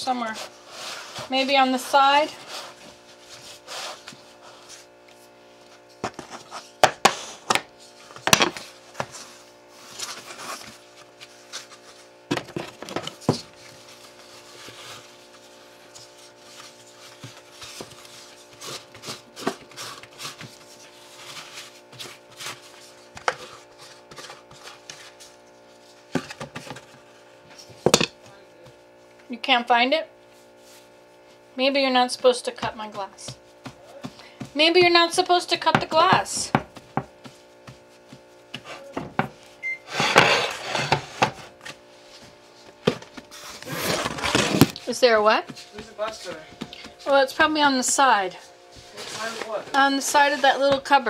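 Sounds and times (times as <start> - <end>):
steady background hum: 0.0 - 51.0
dough knocking on wooden board: 32.5 - 39.3.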